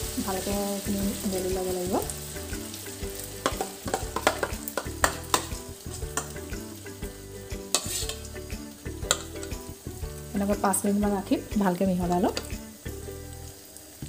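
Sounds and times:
batter frying in oil: 0.0s - 14.0s
spoon scraping and tapping pan: 3.4s - 6.6s, 7.6s - 9.7s, 12.2s - 12.6s.

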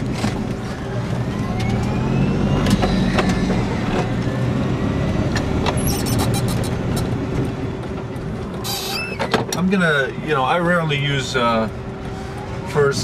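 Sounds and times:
road rumble: 0.0s - 13.0s
electric drivetrain whine: 0.1s - 8.7s.

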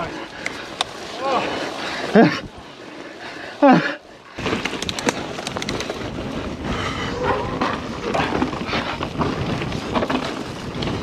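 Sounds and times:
bike rattling over bumps: 4.2s - 11.0s
tyres crunching over loose ground: 4.3s - 11.0s
wind on microphone: 4.4s - 11.0s.

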